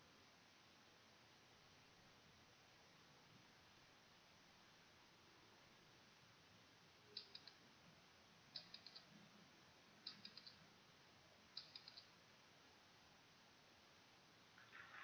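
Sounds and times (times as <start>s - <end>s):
faint countdown timer ticks: 7.0s - 7.7s, 8.4s - 9.3s, 10.0s - 10.7s, 11.4s - 12.2s.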